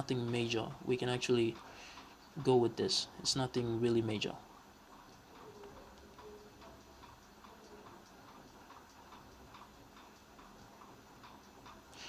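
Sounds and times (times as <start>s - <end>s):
faint regular ticking: 0.0s - 12.0s.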